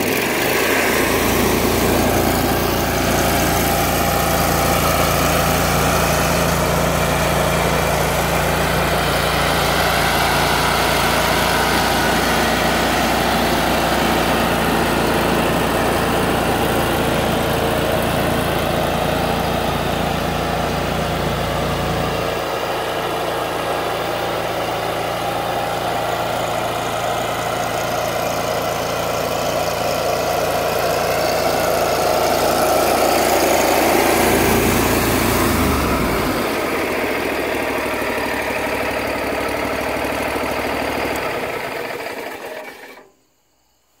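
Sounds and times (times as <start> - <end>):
lawn mower engine running: 0.0 - 43.1
engine shutting off: 0.0 - 43.7.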